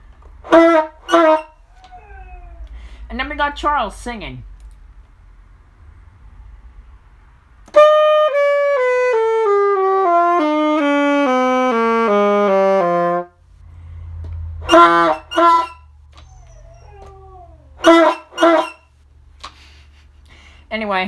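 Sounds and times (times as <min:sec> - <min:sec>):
saxophone descending scale: 0:07.8 - 0:13.3.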